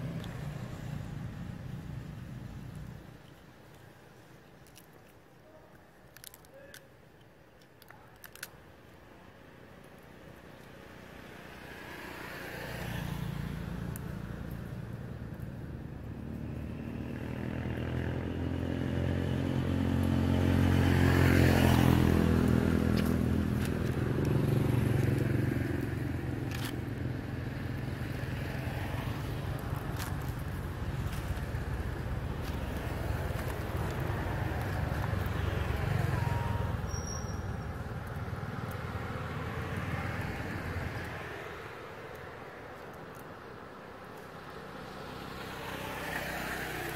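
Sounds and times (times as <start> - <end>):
vehicle engine passing: 11.7 - 41.6.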